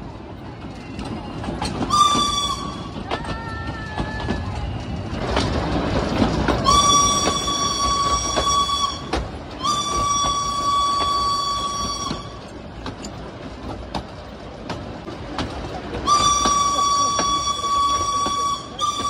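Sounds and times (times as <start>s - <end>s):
rail joint clicks: 0.0s - 19.0s
train wheels rumbling on rails: 0.0s - 19.0s
steam whistle blasts: 1.9s - 3.0s, 6.6s - 12.5s, 16.0s - 19.0s.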